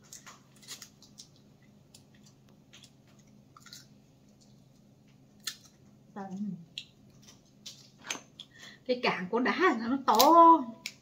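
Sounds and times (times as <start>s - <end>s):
person chewing: 0.0s - 8.6s.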